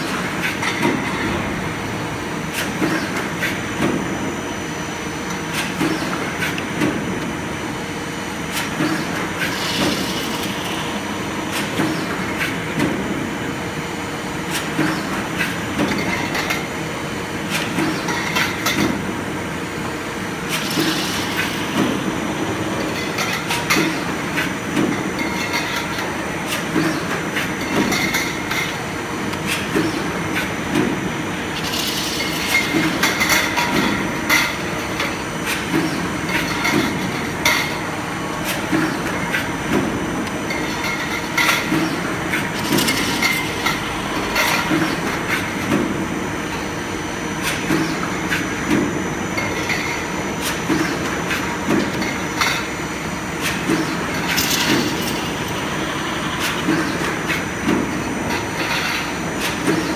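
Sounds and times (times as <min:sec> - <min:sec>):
power press machine din: 0:53.4 - 0:59.9.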